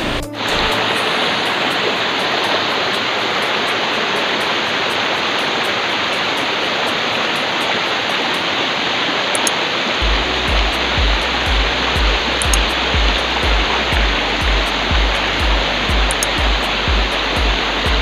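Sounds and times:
background music with low beat: 0.0 - 7.8, 10.0 - 18.0
stream water rushing over rocks: 0.0 - 18.0.

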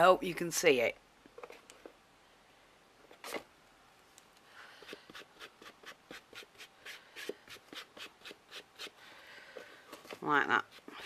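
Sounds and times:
applicator rubbing strokes: 4.8 - 9.0.

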